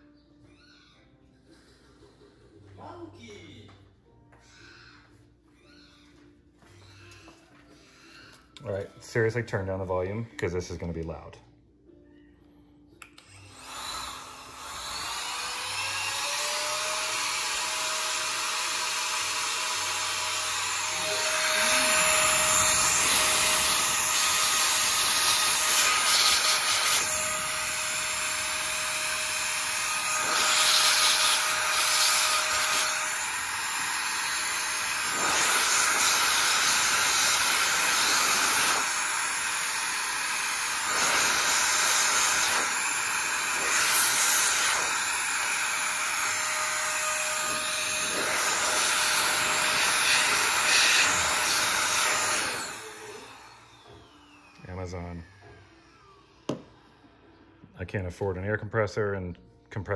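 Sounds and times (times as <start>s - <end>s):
electric air blower whine and rush: 13.0s - 57.7s.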